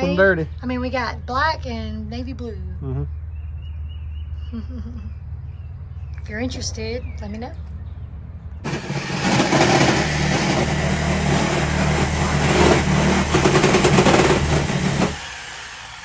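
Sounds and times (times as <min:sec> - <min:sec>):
power tool running: 0:08.6 - 0:16.0.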